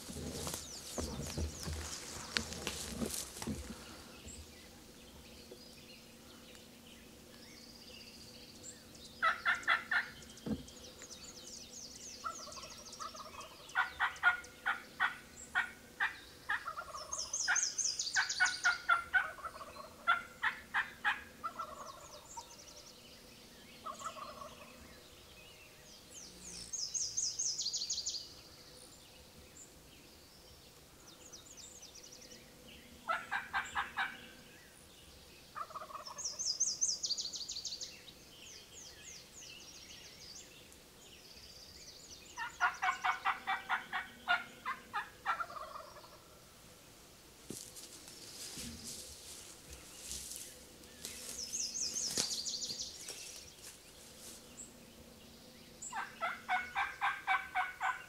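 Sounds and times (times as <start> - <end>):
songbird singing: 0.0 - 58.0
turkeys gobbling: 12.3 - 17.2, 18.6 - 22.1, 23.9 - 24.6, 33.1 - 34.2, 35.6 - 36.2, 42.4 - 46.3, 56.0 - 58.0.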